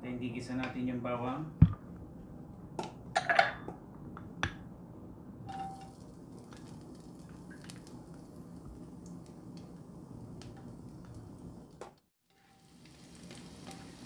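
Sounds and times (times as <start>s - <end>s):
glass bowl clinking on frying pan: 5.5s - 5.9s
oil popping: 5.5s - 9.8s
garlic sizzling in hot oil: 5.5s - 14.0s.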